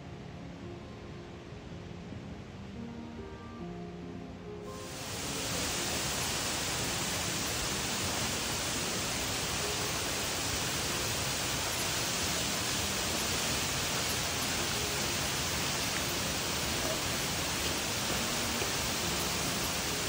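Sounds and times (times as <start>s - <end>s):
waterfall rushing: 4.7s - 20.0s.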